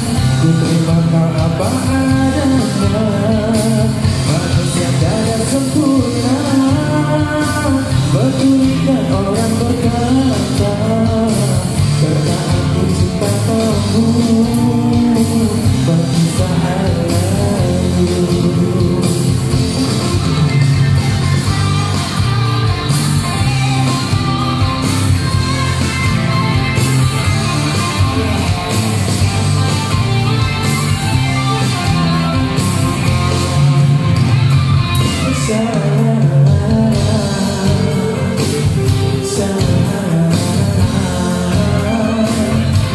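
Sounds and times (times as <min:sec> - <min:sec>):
man singing into a microphone: 0:00.0 - 0:20.3, 0:35.1 - 0:42.9
rock backing track with guitar: 0:00.0 - 0:42.9.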